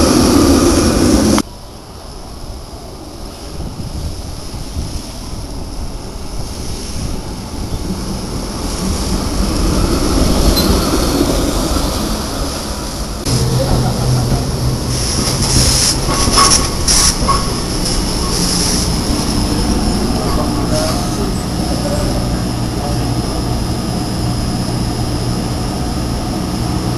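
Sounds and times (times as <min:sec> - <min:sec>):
trolley rumbling on track: 0:00.0 - 0:26.9
steel wheels squealing: 0:15.0 - 0:22.7.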